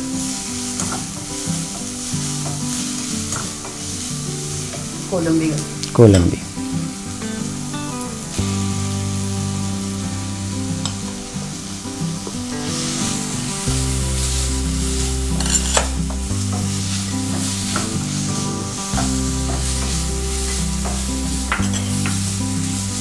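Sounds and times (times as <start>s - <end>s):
food sizzling in a pan: 0.0s - 23.0s
soft background music: 0.0s - 23.0s
spatula scraping and tapping pan: 15.4s - 18.2s, 19.0s - 22.3s.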